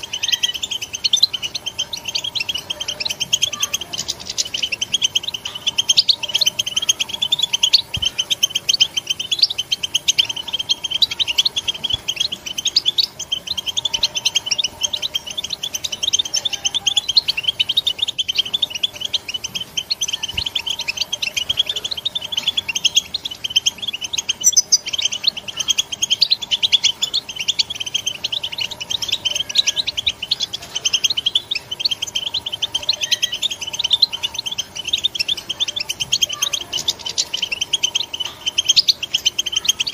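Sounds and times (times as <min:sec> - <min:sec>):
bird twittering chatter: 0:00.0 - 0:39.9.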